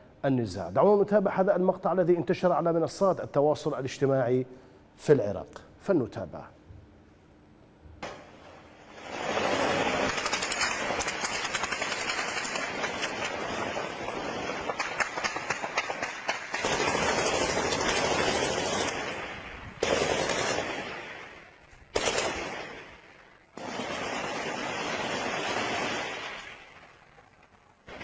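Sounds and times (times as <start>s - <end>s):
automatic gunfire: 9.3s - 19.2s, 19.8s - 21.0s, 22.0s - 22.9s.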